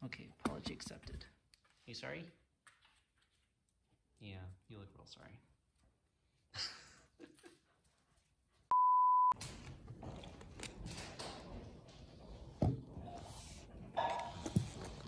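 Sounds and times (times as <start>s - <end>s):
loud beep tone: 8.7s - 9.4s.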